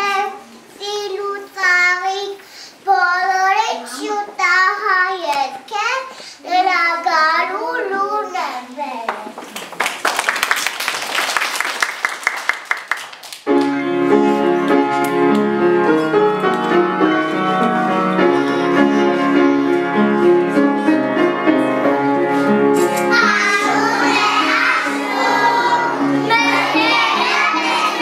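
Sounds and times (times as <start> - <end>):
piano keyboard music: 13.5 - 28.0.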